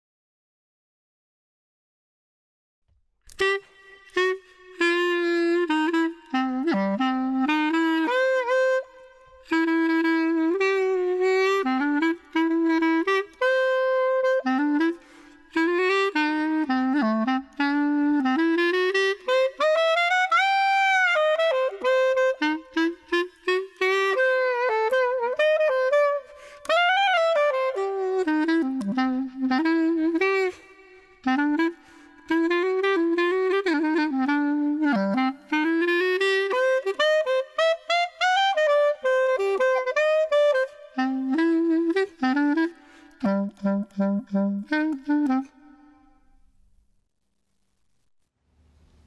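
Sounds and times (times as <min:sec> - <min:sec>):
solo clarinet melody: 0:03.3 - 0:46.4.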